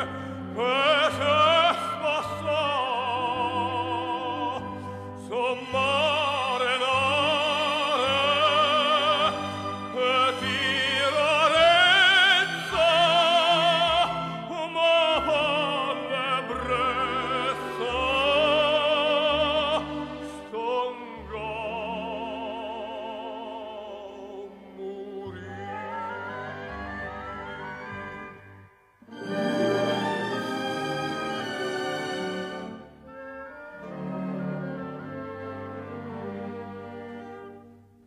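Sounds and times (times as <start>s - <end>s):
operatic tenor singing: 0.0s - 28.3s
orchestral accompaniment: 0.0s - 38.0s.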